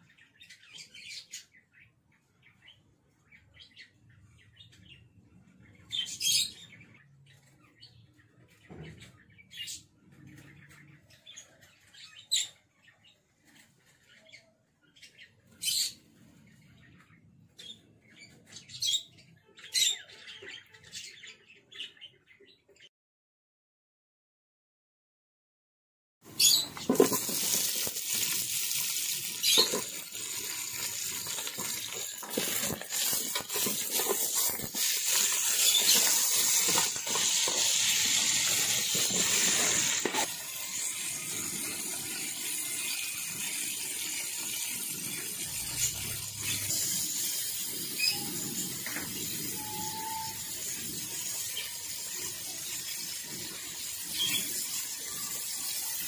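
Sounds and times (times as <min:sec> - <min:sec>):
meat sizzling in oil: 0:26.4 - 0:56.0
ladle scraping pot: 0:26.5 - 0:40.4.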